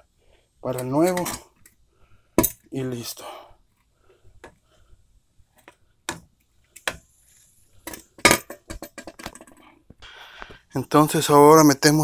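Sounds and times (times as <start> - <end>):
metal clinks and knocks: 7.8 - 9.6.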